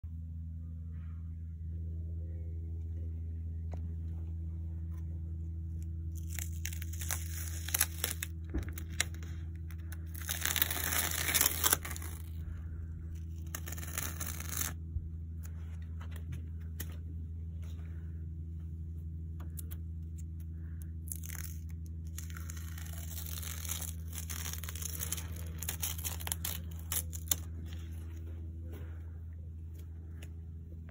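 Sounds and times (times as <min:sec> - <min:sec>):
steady low hum: 0:00.0 - 0:30.9
tape peeling off mesh grille: 0:06.2 - 0:12.4, 0:13.2 - 0:14.8, 0:21.1 - 0:27.5.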